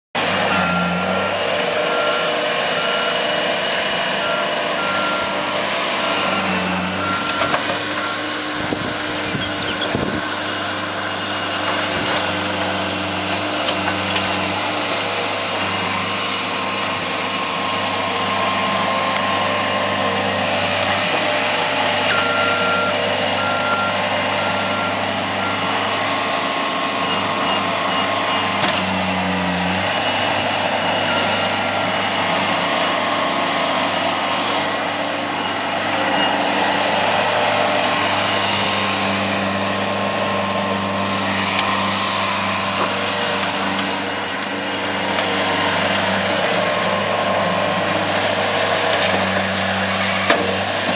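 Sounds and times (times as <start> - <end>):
loader diesel engine running: 0.2 - 50.9.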